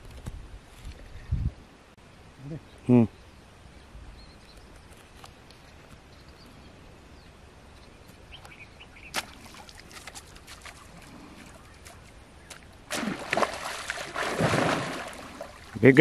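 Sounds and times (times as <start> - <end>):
fish splashing and thrashing: 9.2 - 15.8.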